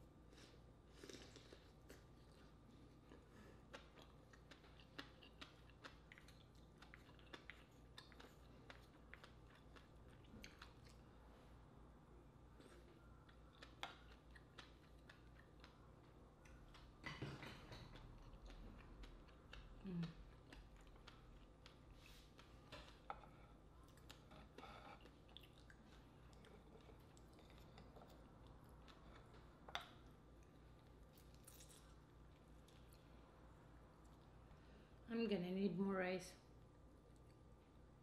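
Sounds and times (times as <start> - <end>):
slurping and chewing: 0.4 - 11.0, 12.6 - 32.0.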